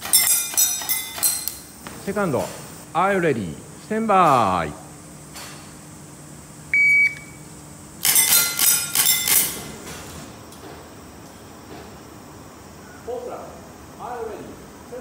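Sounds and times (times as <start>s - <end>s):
steel targets ringing: 0.0s - 1.7s, 8.0s - 9.6s
shot timer beep: 6.7s - 7.4s.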